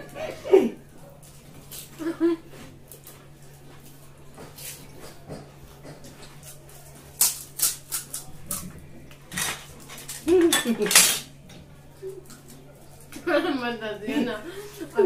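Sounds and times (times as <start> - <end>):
crisp shells cracking: 6.5 - 8.6.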